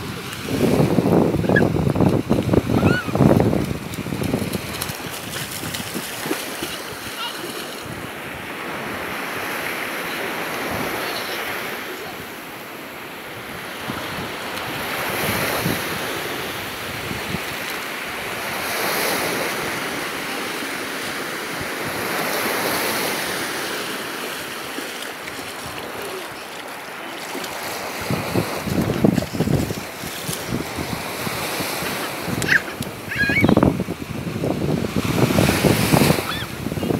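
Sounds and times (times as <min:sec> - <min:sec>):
wind buffeting microphone: 0:00.0 - 0:07.0, 0:27.6 - 0:36.9
small waves washing on shore: 0:00.0 - 0:36.9
splashing in shallow water: 0:00.1 - 0:08.1, 0:22.3 - 0:33.6.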